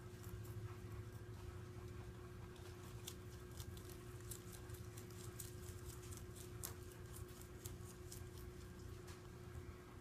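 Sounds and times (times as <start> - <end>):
rabbit chewing greens: 0.0 - 10.0
steady low hum: 0.0 - 10.0.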